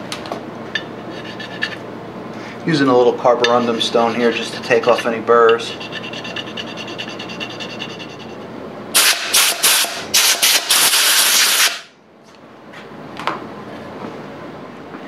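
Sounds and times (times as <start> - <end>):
stone rubbing on metal: 1.0 - 1.8, 3.4 - 8.4
air blow gun hissing: 9.0 - 11.9.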